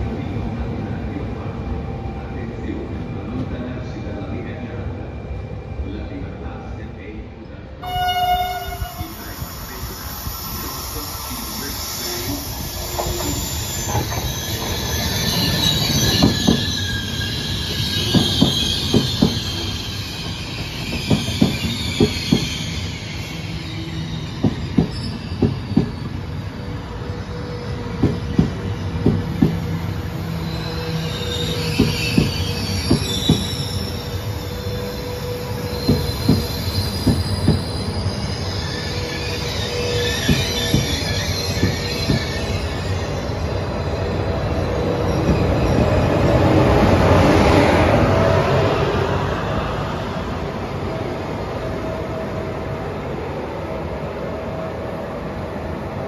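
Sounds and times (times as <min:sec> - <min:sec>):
wheels squealing: 0:10.3 - 0:46.2
train wheels clacking: 0:12.8 - 0:16.9, 0:18.0 - 0:19.8, 0:20.8 - 0:22.6, 0:24.4 - 0:26.1, 0:31.3 - 0:33.6, 0:35.8 - 0:37.7, 0:40.0 - 0:42.4.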